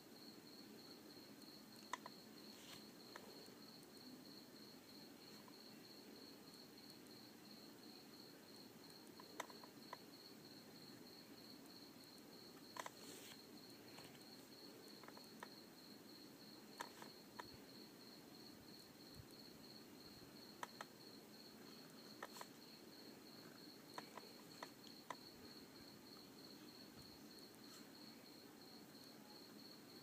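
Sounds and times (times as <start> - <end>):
faint clicks: 1.8 - 2.2, 9.1 - 10.0, 20.6 - 20.9, 23.4 - 25.2.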